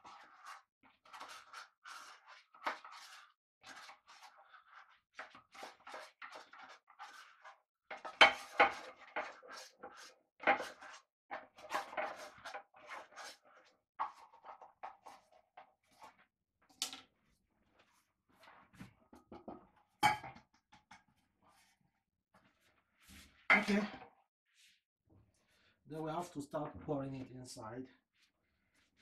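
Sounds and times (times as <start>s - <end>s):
spoon scraping in metal tin: 0.0s - 15.3s.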